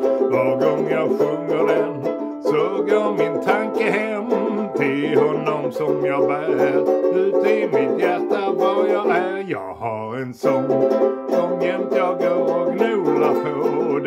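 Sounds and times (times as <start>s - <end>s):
harmonica melody: 0.0s - 9.6s, 10.4s - 14.0s
strummed banjo: 0.0s - 14.0s.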